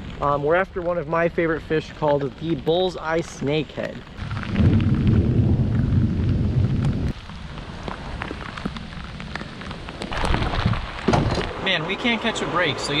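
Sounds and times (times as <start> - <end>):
heavy rain pouring: 0.0 - 13.0
rain drop ticks: 0.0 - 13.0
loud low rumble: 4.2 - 7.1.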